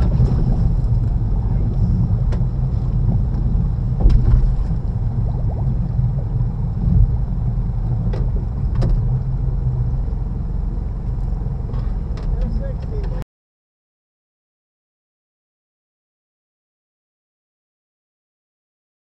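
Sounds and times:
boat engine droning: 0.0 - 13.2.

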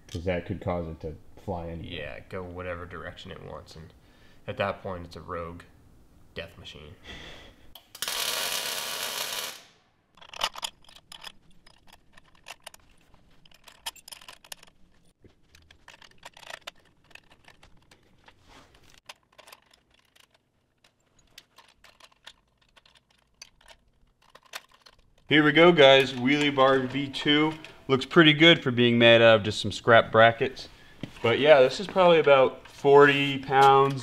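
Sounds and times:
arc welder crackling: 7.8 - 9.8
metal parts clinking: 10.2 - 27.9.

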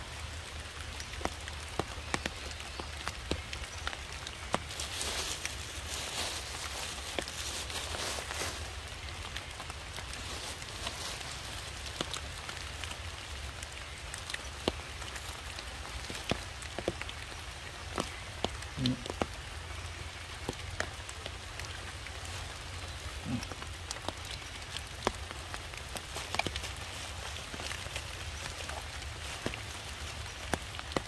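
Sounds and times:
water dripping on leaves and stones: 0.0 - 31.0.

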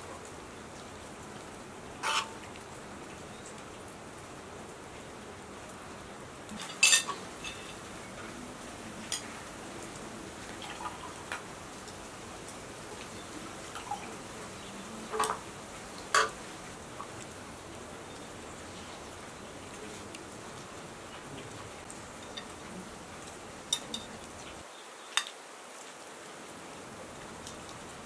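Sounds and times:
faint hiss: 0.0 - 28.0
cutlery clinking on plates: 6.6 - 7.8, 16.1 - 16.4, 23.7 - 24.1.

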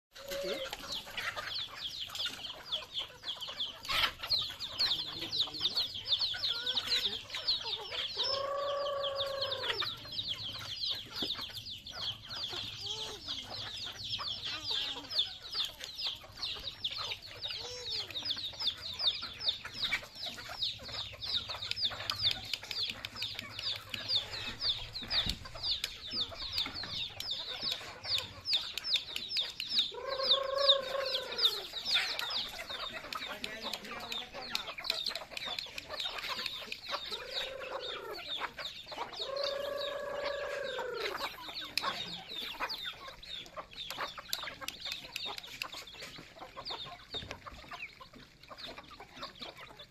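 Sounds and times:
chickens clucking: 0.1 - 49.9
long drawn-out chicken call: 0.2 - 0.8, 8.0 - 10.0, 29.9 - 31.8, 37.1 - 38.3, 39.2 - 41.4
high-pitched chirping: 0.2 - 47.2.

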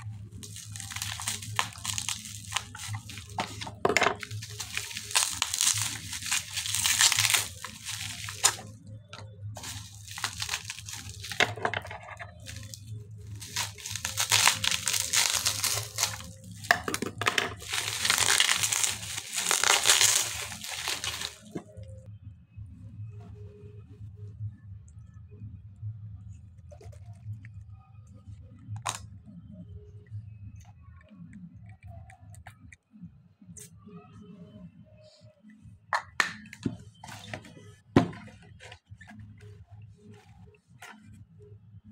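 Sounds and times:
bubble wrap crinkling and tearing: 0.2 - 8.8, 9.6 - 11.6, 12.2 - 21.8.

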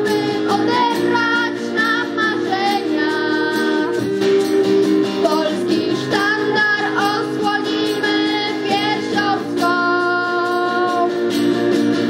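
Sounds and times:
girls singing: 0.0 - 4.1, 5.2 - 11.1
strummed acoustic guitar: 0.0 - 12.0.

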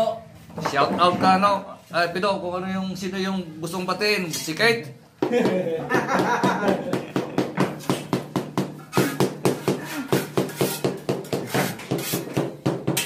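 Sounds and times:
hand tool tapping stone tile: 6.2 - 13.0.

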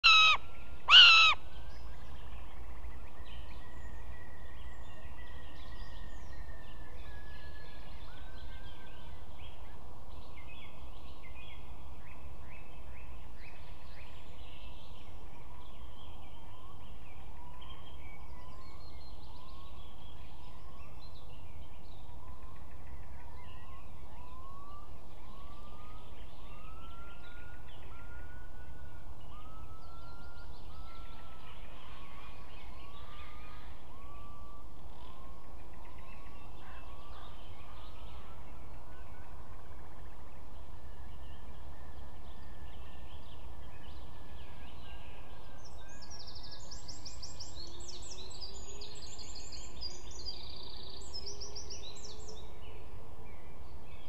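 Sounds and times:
upslurred whistled bird calls: 0.0 - 1.4
faint songbirds singing: 0.0 - 54.0.

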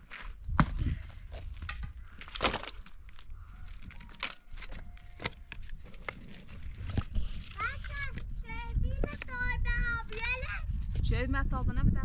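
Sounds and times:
wooden clacks and scrapes: 1.3 - 9.3.

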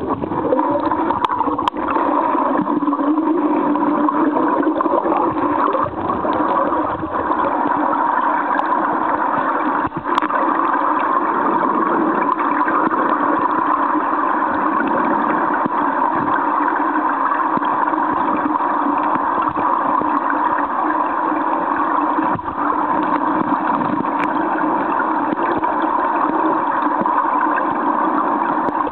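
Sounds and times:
stream water rushing: 0.0 - 28.9.

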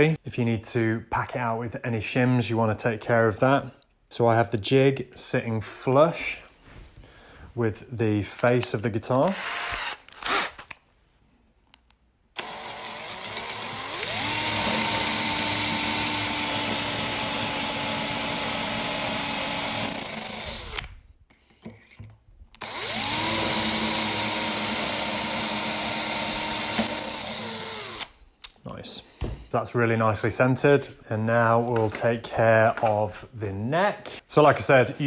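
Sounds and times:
cordless drill boring through wood: 9.3 - 10.7, 12.4 - 21.0, 22.6 - 28.2.

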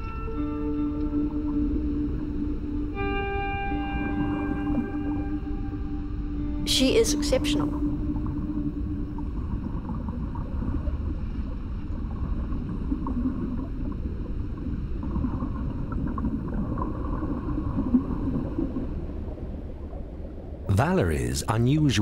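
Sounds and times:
faint wavering tones: 0.0 - 14.0
low underwater rumble: 0.0 - 20.7.

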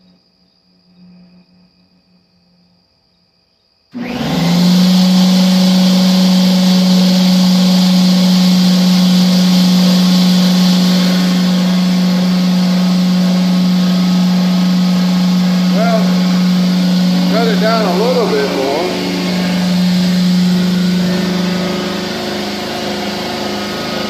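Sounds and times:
machine motor humming: 4.0 - 24.0.

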